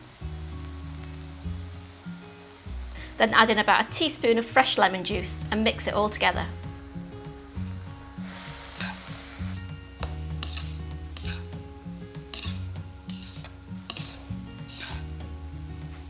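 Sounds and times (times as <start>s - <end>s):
background music: 0.0s - 16.0s
metal spatula scraping wok: 8.1s - 15.3s.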